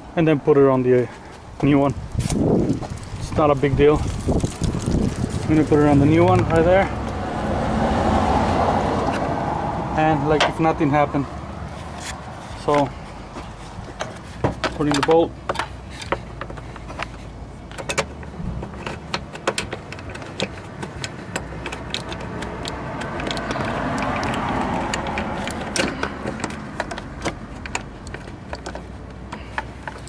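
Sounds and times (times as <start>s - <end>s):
socket ratchet clicking: 17.7s - 30.0s.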